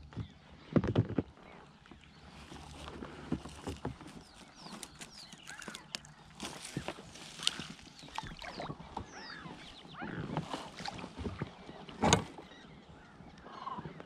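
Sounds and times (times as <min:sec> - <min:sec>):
knocks and clicks in boat: 0:00.0 - 0:14.0
rustling: 0:02.3 - 0:08.4.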